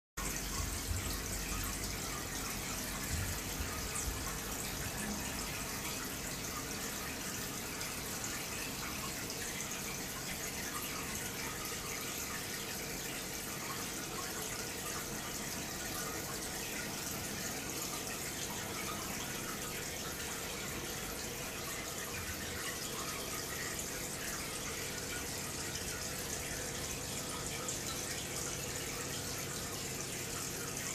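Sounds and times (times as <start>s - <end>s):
water trickling from aquarium filter: 0.2s - 30.9s.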